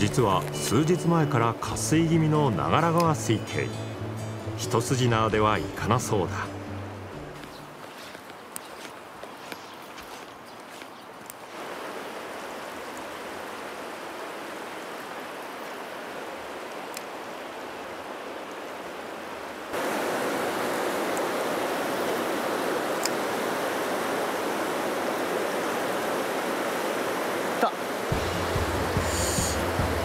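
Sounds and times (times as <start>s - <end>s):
river rapids rushing over rocks: 19.7s - 30.0s.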